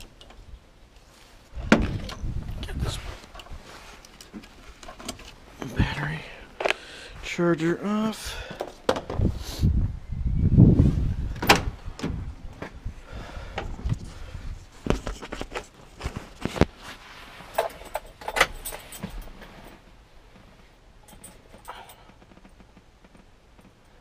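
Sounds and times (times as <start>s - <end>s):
keys jingling: 17.5s - 19.4s, 21.1s - 22.0s.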